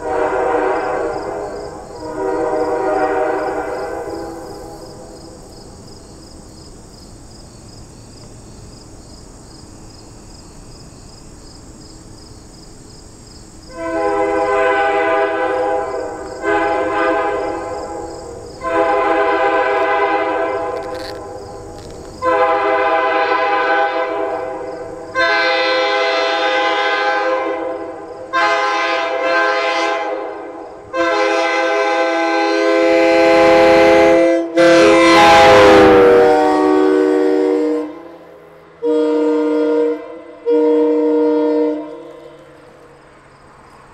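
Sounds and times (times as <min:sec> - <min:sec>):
train horn chord blasts: 0:00.0 - 0:05.1, 0:13.7 - 0:21.0, 0:22.2 - 0:42.6.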